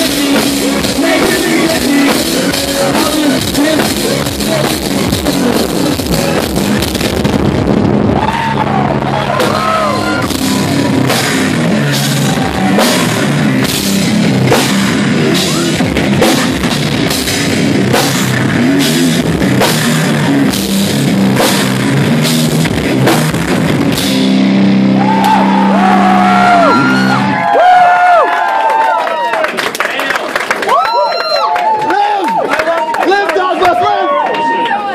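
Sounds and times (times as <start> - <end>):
electric guitar: 0.0 - 27.6
drum kit beat: 0.0 - 27.8
low bass notes: 0.0 - 28.2.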